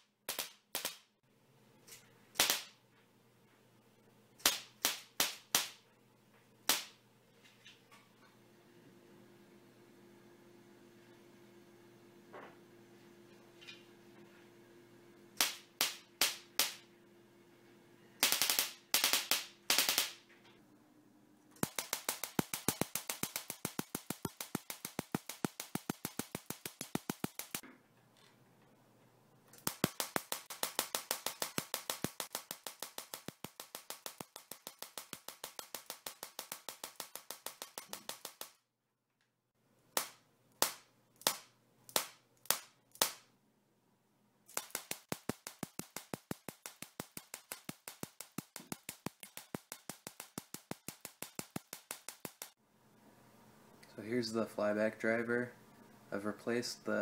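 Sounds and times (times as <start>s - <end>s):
tesla coil sparks snapping: 0.3s - 1.1s, 2.4s - 2.8s, 4.4s - 5.8s, 6.6s - 7.0s, 15.4s - 16.9s, 18.2s - 20.2s, 21.6s - 27.6s, 29.5s - 38.6s, 39.9s - 43.3s, 44.5s - 52.6s.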